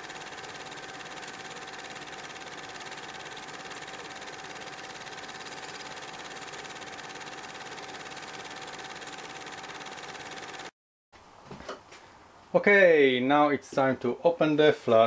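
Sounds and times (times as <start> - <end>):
pulsing machine hum: 0.0 - 10.7.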